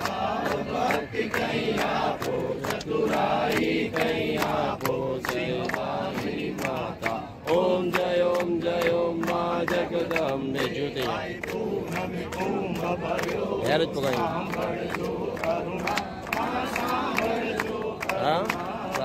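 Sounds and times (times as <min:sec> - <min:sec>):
crowd singing a chant: 0:00.0 - 0:19.0
rhythmic hand clapping: 0:00.0 - 0:19.0.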